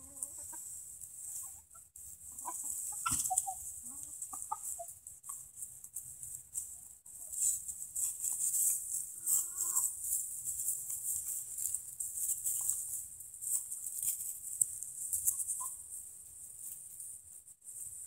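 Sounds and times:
hen clucking: 0.0 - 7.6, 8.3 - 14.2, 15.1 - 16.0
hens rustling and pecking: 0.0 - 18.0.

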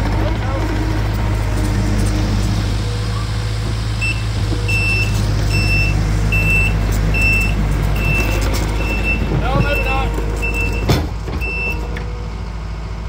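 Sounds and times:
diesel engine running: 0.0 - 13.0
backup alarm beeping: 2.8 - 11.9.

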